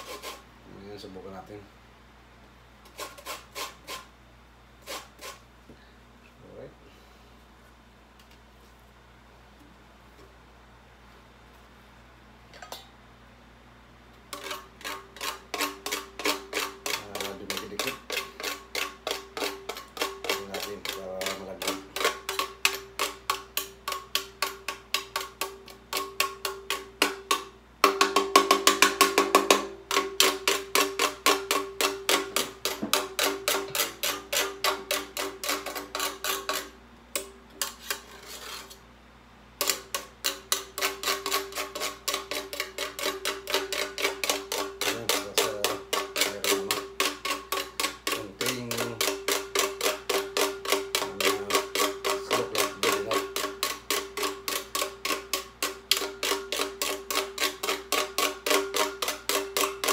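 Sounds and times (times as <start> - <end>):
metal grater rasping: 0.0 - 0.4, 2.9 - 4.1, 4.8 - 5.4, 14.3 - 24.2, 29.9 - 36.7, 37.6 - 38.8, 39.6 - 59.9.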